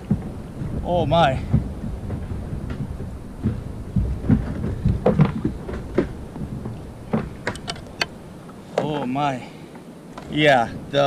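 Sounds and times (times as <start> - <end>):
wind rumble on microphone: 0.0 - 8.7.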